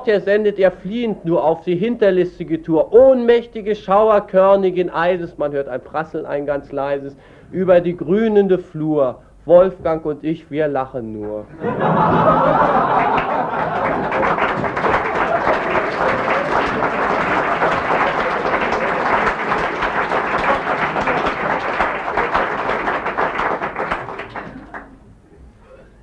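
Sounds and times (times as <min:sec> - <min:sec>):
audience applause: 0:11.6 - 0:25.0.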